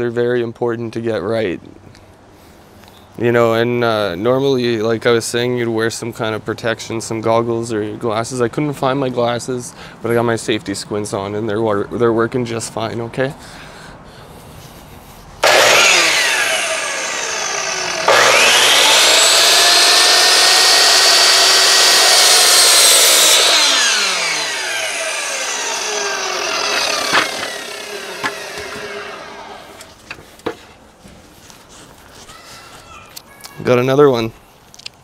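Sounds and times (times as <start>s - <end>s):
miter saw motor running: 15.4s - 29.9s
saw blade cutting wood: 15.4s - 30.0s.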